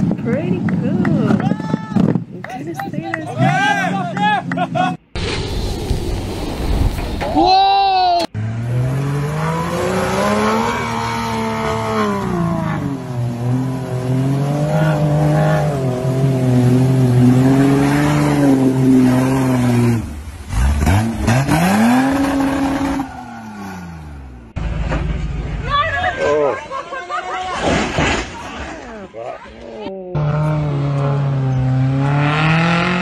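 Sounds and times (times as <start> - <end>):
suv engine revving: 8.4 - 25.2, 30.2 - 33.0.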